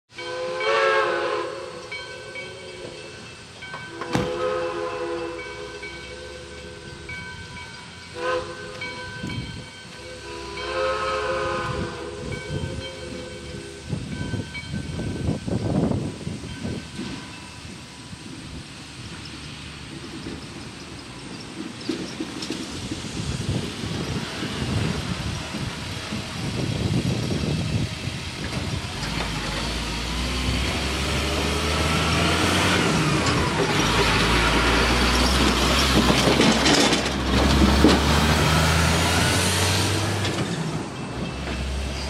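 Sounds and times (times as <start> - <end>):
steam locomotive whistle: 0.1 - 14.4
steam hissing: 0.3 - 42.0.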